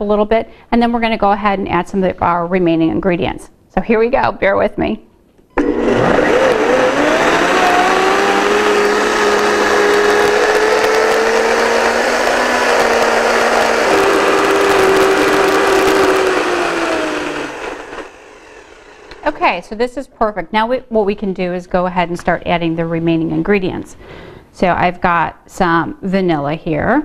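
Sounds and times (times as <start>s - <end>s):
blender running: 5.6s - 19.4s.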